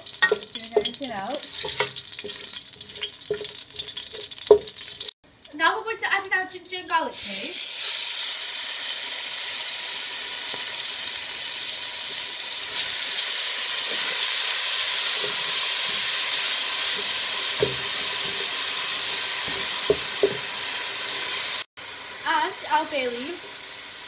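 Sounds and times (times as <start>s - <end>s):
wooden spoon knocking pot: 0.0s - 5.0s, 16.9s - 18.5s, 19.5s - 20.5s
paste sizzling in hot oil: 0.0s - 5.6s, 7.0s - 24.0s.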